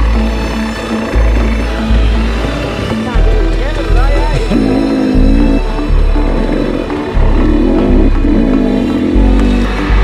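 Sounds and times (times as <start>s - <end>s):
music with pulsing bass: 0.0s - 10.0s.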